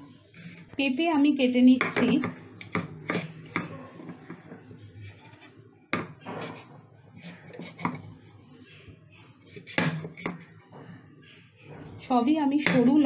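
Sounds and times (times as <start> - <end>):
blade scraping papaya: 2.6 - 3.8, 6.3 - 8.1.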